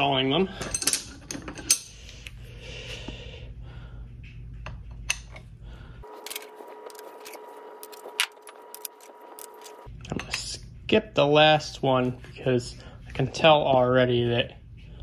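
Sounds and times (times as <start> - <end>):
faint hum with whine: 0.0 - 15.0
metal tubes clinking: 0.1 - 2.3.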